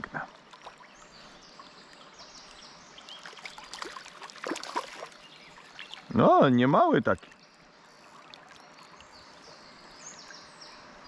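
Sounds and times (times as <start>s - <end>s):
river water running: 0.0s - 11.0s
water splashes and knocks: 3.2s - 6.1s.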